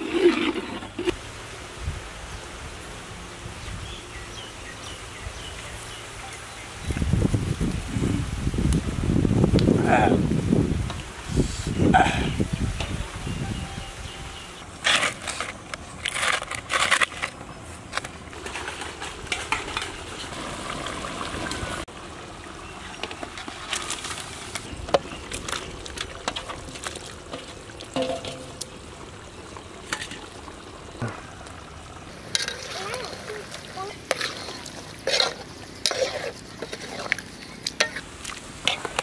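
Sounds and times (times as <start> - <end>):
curry simmering and sizzling: 18.3 - 39.0
metal utensils clinking on pot: 27.3 - 28.8, 32.3 - 33.1.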